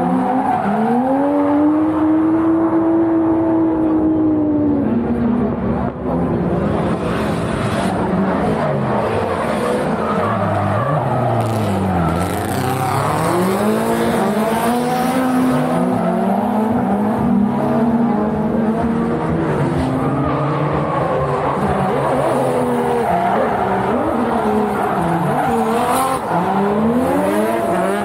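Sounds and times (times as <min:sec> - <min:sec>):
car engines revving: 0:00.0 - 0:28.0
tyres skidding: 0:06.7 - 0:28.0.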